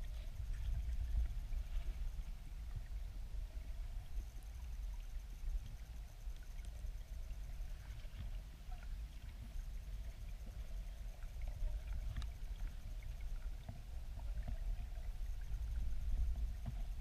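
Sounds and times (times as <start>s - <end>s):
underwater river water rumble: 0.0s - 17.0s
faint scattered clicks: 5.5s - 7.1s, 11.2s - 14.8s.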